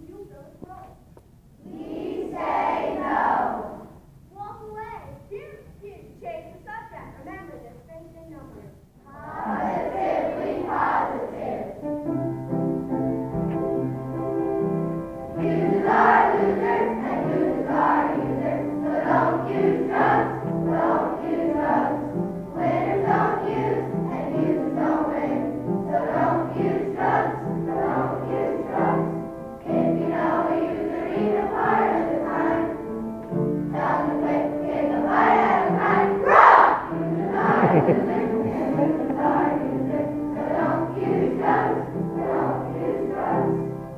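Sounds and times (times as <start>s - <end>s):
children's choir singing: 1.6s - 4.0s, 9.1s - 12.2s, 13.7s - 43.9s
instrumental accompaniment: 11.8s - 43.9s.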